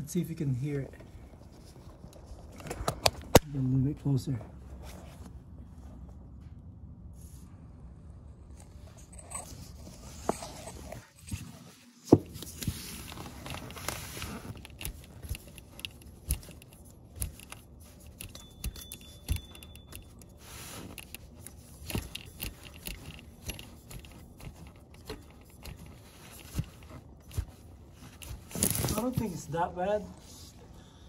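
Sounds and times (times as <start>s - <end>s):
bearing rough whir: 12.2s - 29.4s
light clicks and rattles: 12.3s - 29.5s.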